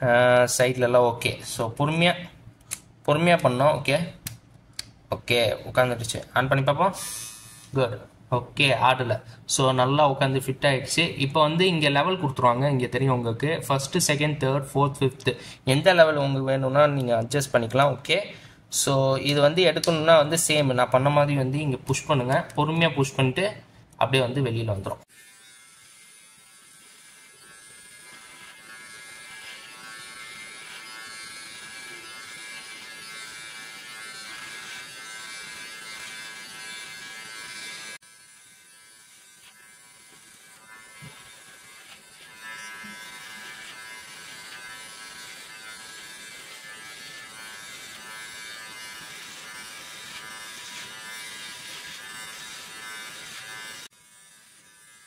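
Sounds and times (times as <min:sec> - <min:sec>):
hair trimmer buzzing: 0:07.0 - 0:07.8, 0:25.1 - 0:55.0.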